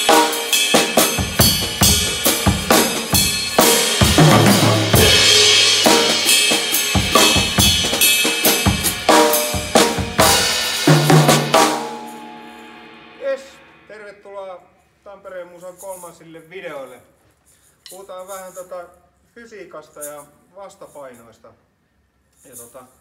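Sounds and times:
drum kit groove: 0.0 - 14.1
tom fill: 0.0 - 14.4.

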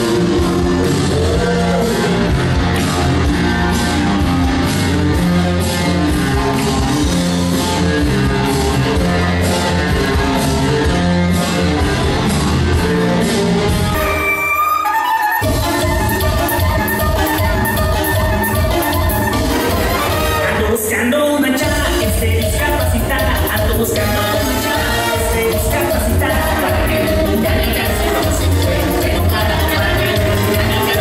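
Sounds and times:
dance music with steady beat: 13.9 - 31.0.

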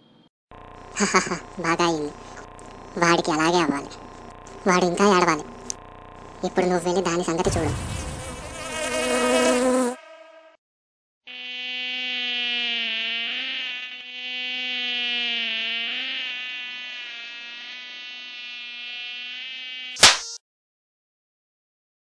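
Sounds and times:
mosquito buzzing whine: 0.5 - 10.6, 11.2 - 20.4
short sharp click: 20.0 - 20.4.

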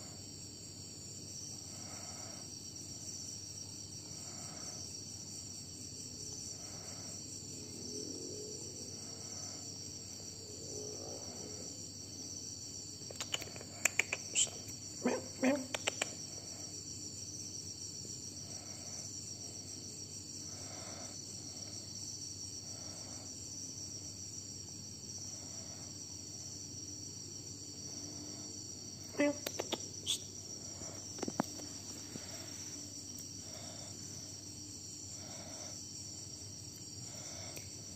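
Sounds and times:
insects chirping: 0.0 - 37.9
sharp clicks and short chirps: 13.1 - 14.7, 15.7 - 16.2, 29.3 - 30.3.

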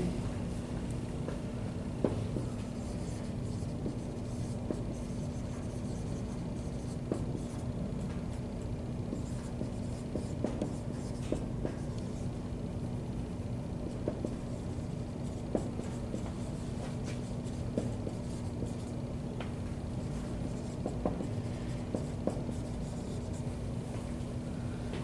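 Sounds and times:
low room hum: 0.0 - 25.0
marker tapping: 2.0 - 8.3, 9.1 - 12.1, 13.8 - 14.6, 15.3 - 19.6, 20.2 - 23.4
marker writing on whiteboard: 2.0 - 8.3, 9.1 - 12.2, 13.8 - 19.0, 20.0 - 23.4.

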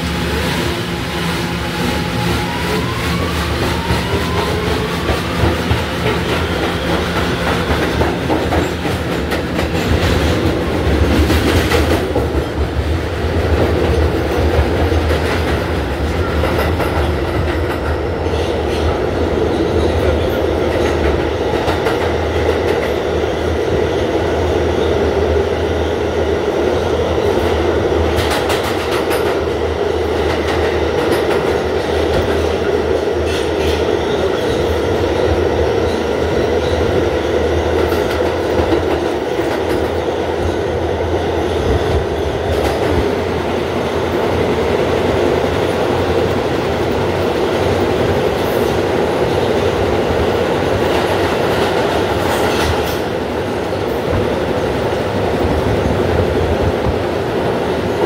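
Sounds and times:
wheels rumbling on rail: 0.0 - 58.0
clacks over rail joints: 3.8 - 12.8, 27.4 - 29.5.

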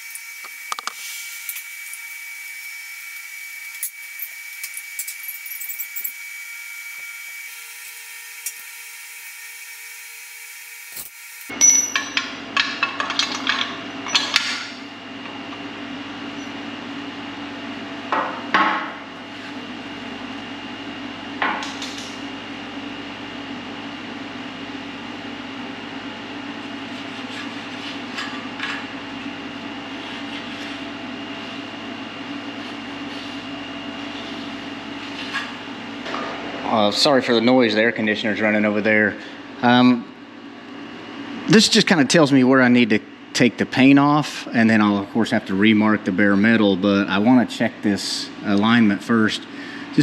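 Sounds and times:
air conditioner humming: 11.5 - 50.0.

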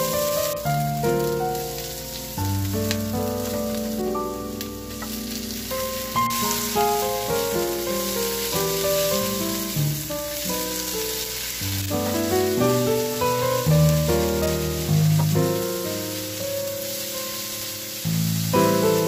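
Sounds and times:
vegetables sizzling in a frying pan: 0.0 - 19.0.

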